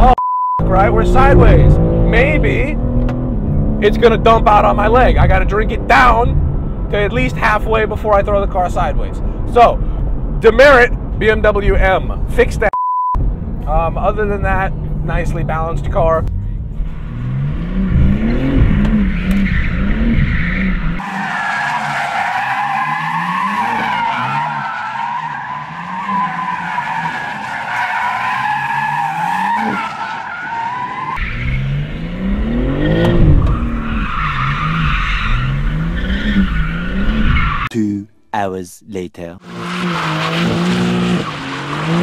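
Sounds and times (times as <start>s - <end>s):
car engine revving: 0.6s - 8.4s, 13.2s - 37.7s, 39.4s - 42.0s
tyre squeal: 18.9s - 31.6s.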